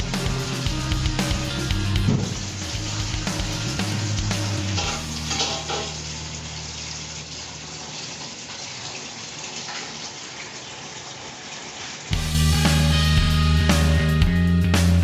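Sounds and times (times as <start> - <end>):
background music: 0.0 - 6.0, 12.1 - 15.0
pot boiling and bubbling: 0.0 - 12.2.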